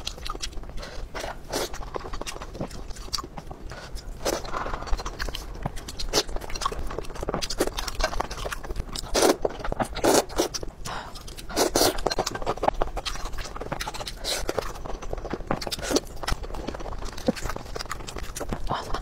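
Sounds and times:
person chewing: 0.0 - 19.0.

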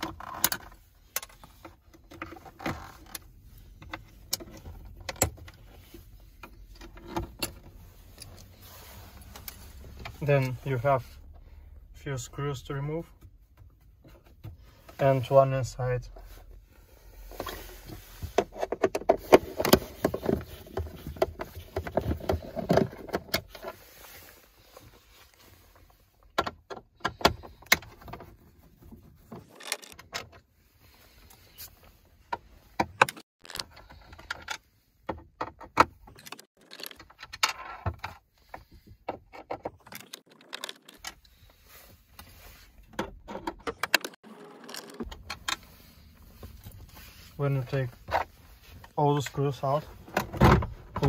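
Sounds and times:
small clicks and scrapes: 17.2 - 34.7, 35.4 - 49.8.

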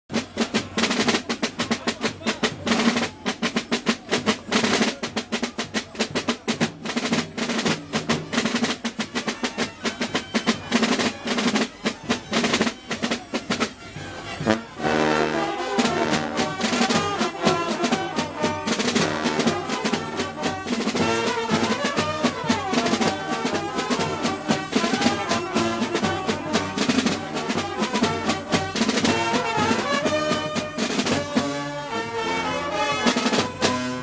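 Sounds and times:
drums beating fast rhythm: 0.1 - 34.0
trumpets and brass playing: 6.9 - 34.0.

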